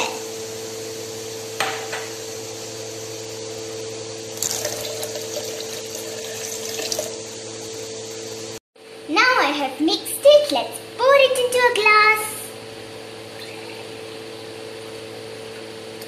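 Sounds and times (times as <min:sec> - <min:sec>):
water pouring into blender jar: 0:04.3 - 0:07.2.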